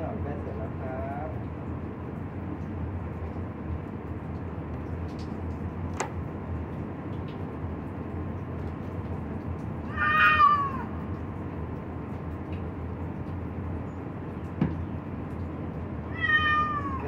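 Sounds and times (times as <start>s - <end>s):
steady background hum: 0.0s - 17.0s
cat meowing: 9.9s - 10.9s, 16.1s - 17.0s.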